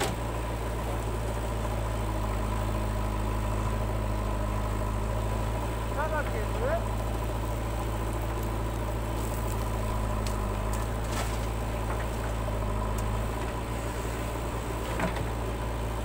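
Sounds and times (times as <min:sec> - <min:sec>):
diesel engine running: 0:00.0 - 0:16.0
bucket dumping soil: 0:10.4 - 0:12.3.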